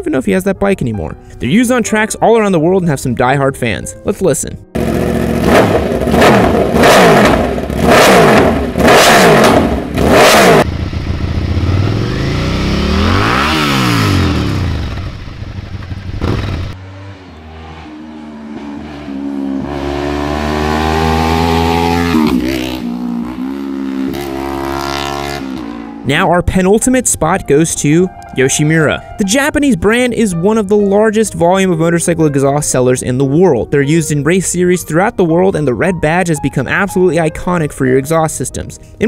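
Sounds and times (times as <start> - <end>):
motorcycle accelerating along road: 4.7 - 26.1
motorcycle revving up and down: 4.8 - 26.1
motorcycle engine blipped: 4.8 - 27.2.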